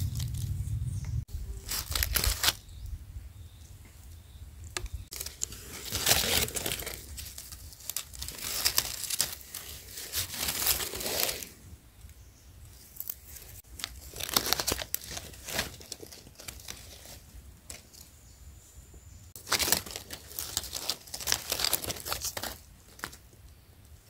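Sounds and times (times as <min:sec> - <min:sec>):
dry leaves rustling and crackling: 0:00.0 - 0:02.7, 0:05.0 - 0:11.6, 0:12.8 - 0:18.2, 0:19.4 - 0:23.3.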